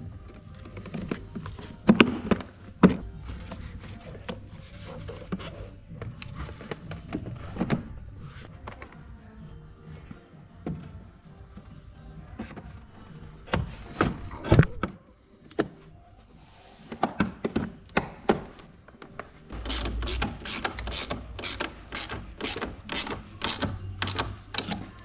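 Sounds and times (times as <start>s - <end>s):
ratchet wrench clicking: 19.6s - 24.4s.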